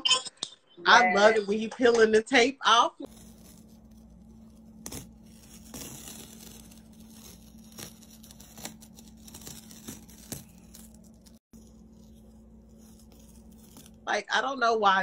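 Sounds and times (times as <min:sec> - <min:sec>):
tape peeling off canvas: 0:03.1 - 0:14.1.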